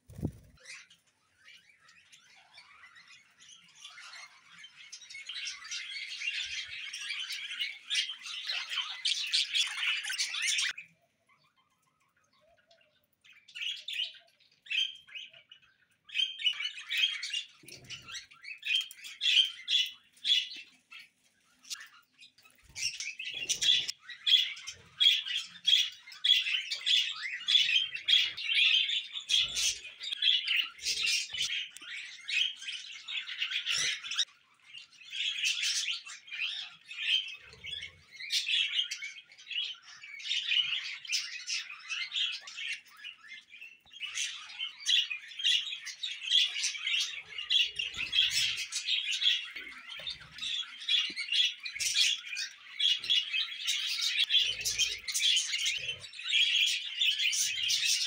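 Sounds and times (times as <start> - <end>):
budgerigars chattering: 39.6 - 58.0.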